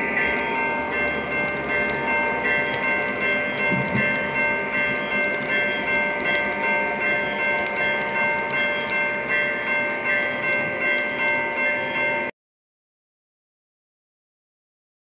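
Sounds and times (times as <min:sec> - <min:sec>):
regular ticking: 0:00.0 - 0:11.7
model train cars rolling on track: 0:00.0 - 0:12.3
steady ringing tone: 0:00.0 - 0:12.3.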